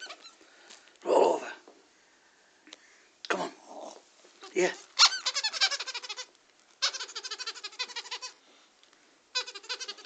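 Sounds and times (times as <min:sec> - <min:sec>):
soft toy warbling chirps: 0:05.0 - 0:08.4, 0:09.4 - 0:10.0.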